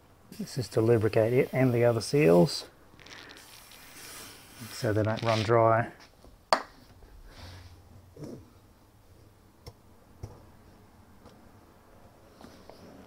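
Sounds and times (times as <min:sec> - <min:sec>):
soft rustle: 0:00.4 - 0:06.2.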